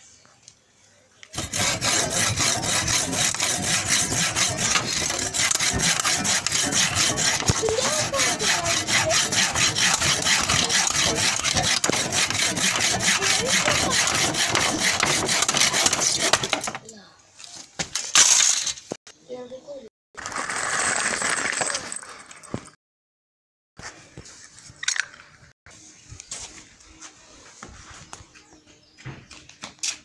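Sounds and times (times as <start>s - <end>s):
hand saw cutting wood: 1.3s - 16.9s.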